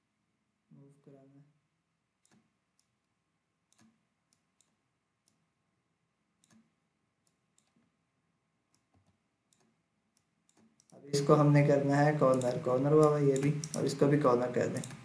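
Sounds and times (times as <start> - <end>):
faint computer mouse clicks: 2.2 - 3.1, 3.7 - 5.4, 6.4 - 7.9, 8.7 - 11.0, 12.2 - 14.0, 14.6 - 15.0.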